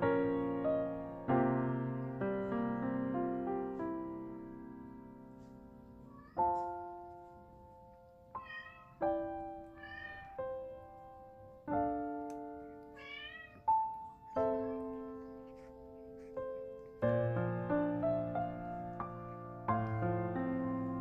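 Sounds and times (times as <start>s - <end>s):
slow piano music: 0.0s - 21.0s
kitten mewing: 6.0s - 6.7s, 8.4s - 9.0s.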